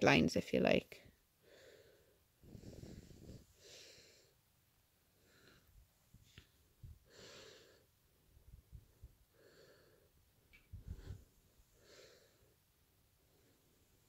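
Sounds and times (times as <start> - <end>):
slow breathing: 1.4 - 4.5, 5.1 - 8.0, 8.8 - 14.0.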